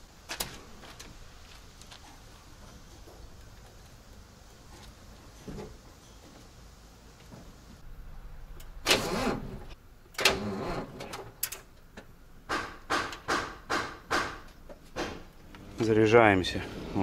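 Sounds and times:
truck starter cranking: 8.6s - 11.6s.

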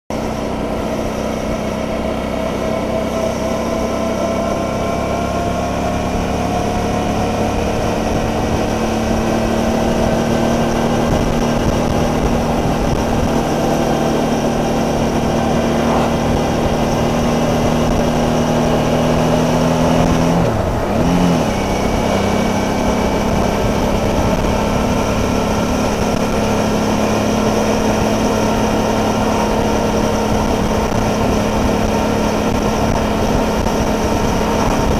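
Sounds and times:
motorcycle engine running: 0.1s - 34.9s
wind rush over microphone: 6.2s - 34.9s.

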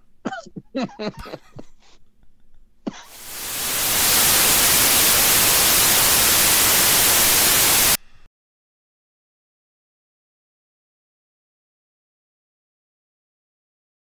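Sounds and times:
radio static hiss: 3.1s - 8.0s.

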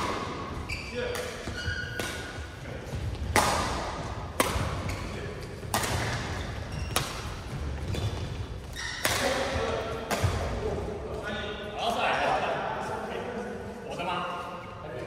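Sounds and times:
badminton rackets hitting shuttlecock: 0.0s - 10.6s.

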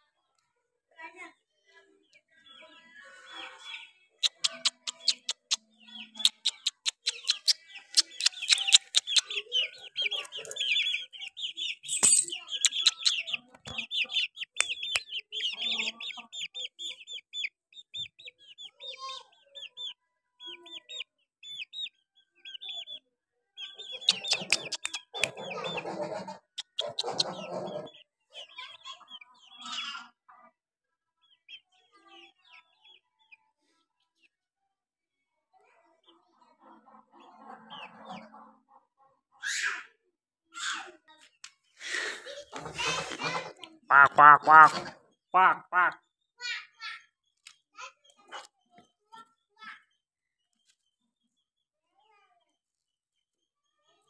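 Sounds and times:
chicks peeping: 2.0s - 30.5s, 31.2s - 34.3s, 35.9s - 39.6s, 41.2s - 46.0s.

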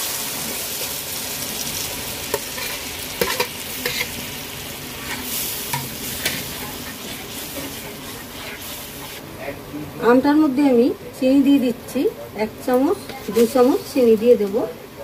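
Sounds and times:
mango sizzling in a frying pan: 0.0s - 9.7s, 13.0s - 15.0s
spatula scraping a pan: 2.3s - 4.4s, 5.0s - 9.2s.

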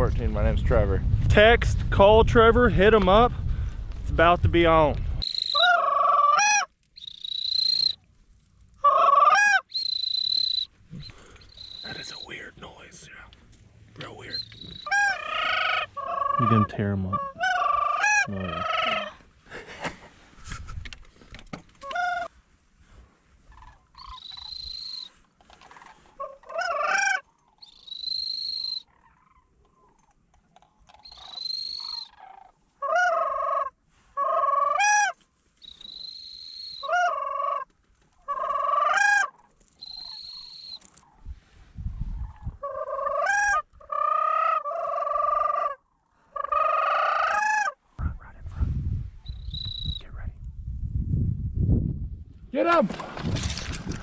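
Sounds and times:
high drawn-out whistles: 5.2s - 5.7s, 7.0s - 8.0s, 9.7s - 12.5s, 24.2s - 25.1s, 27.7s - 28.9s, 31.1s - 32.1s, 35.6s - 36.9s, 39.8s - 40.8s, 49.2s - 50.0s
cranes rattling trumpet calls: 5.2s - 8.0s, 8.8s - 10.7s, 14.3s - 19.2s, 24.0s - 29.3s, 31.0s - 37.7s, 38.3s - 40.8s.

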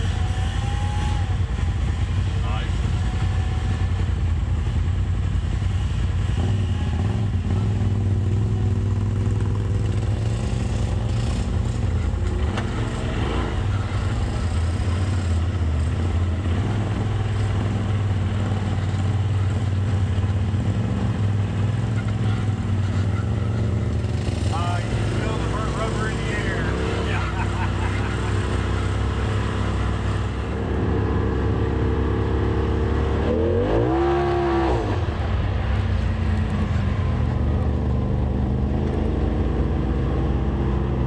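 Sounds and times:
engine revving up and down: 0.0s - 1.6s, 9.2s - 18.9s, 20.6s - 35.5s.

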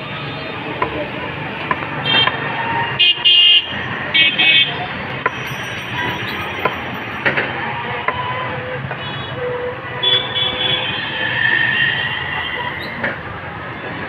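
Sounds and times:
busy street traffic: 0.0s - 14.0s
auto-rickshaws going by: 3.7s - 9.1s.

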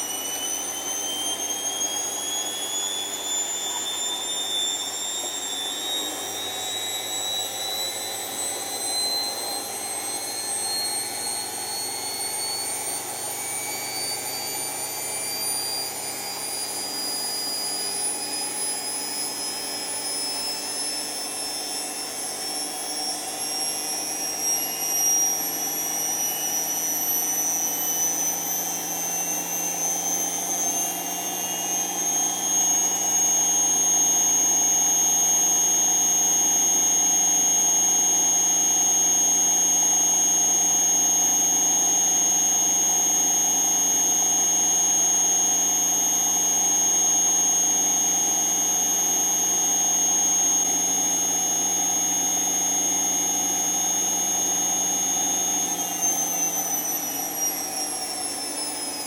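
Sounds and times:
washing machine spinning: 25.4s - 32.0s.

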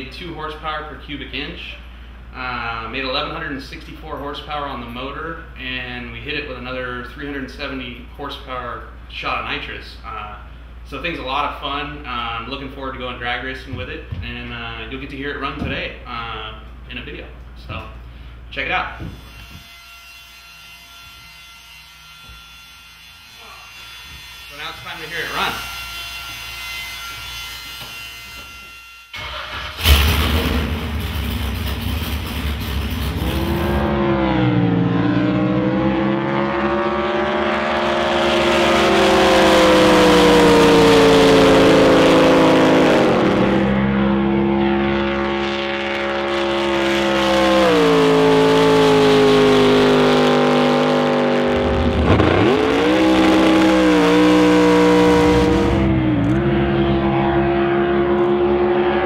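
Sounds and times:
racing boat engine revving: 29.3s - 59.0s.

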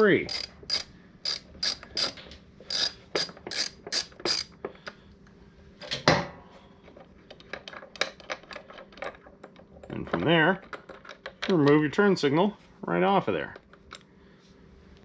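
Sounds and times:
ratchet wrench clicking: 0.0s - 5.0s.

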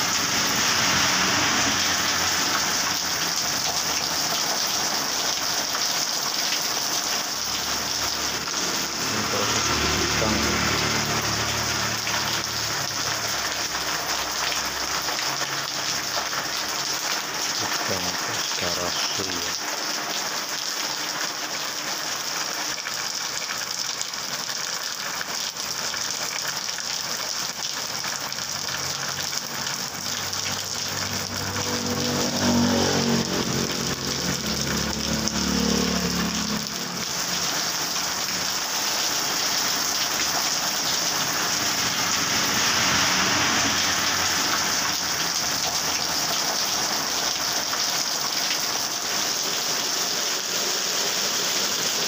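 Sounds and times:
heavy rain on road: 0.0s - 52.0s
small motorcycle passing: 7.9s - 13.2s, 30.2s - 38.5s, 41.2s - 46.3s.

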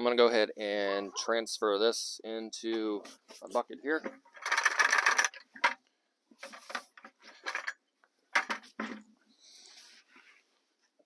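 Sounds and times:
plastic bucket clattering: 4.0s - 5.8s, 6.4s - 7.8s, 8.4s - 9.1s.

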